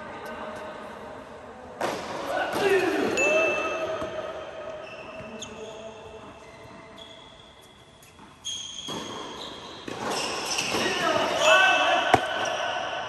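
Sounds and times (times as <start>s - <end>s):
tennis ball bouncing on hard court: 8.0s - 10.9s.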